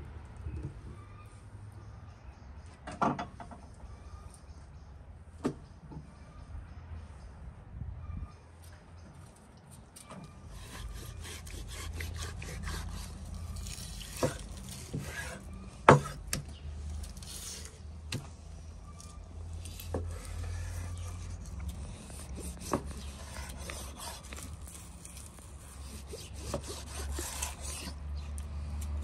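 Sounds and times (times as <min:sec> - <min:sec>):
knife slicing meat: 0:10.6 - 0:16.3, 0:20.1 - 0:28.0.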